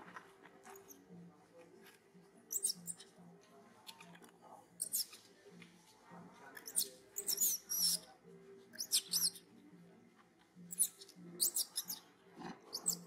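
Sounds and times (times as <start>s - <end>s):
baby monkey squealing: 2.5s - 3.0s, 4.8s - 5.2s, 6.6s - 8.0s, 8.8s - 9.5s, 10.7s - 12.0s, 12.7s - 13.0s.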